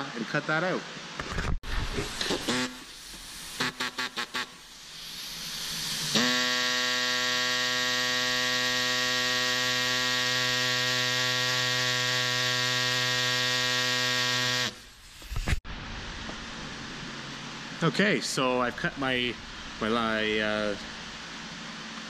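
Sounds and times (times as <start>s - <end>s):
air saw buzzing through plastic: 1.9s - 4.5s, 5.3s - 14.8s.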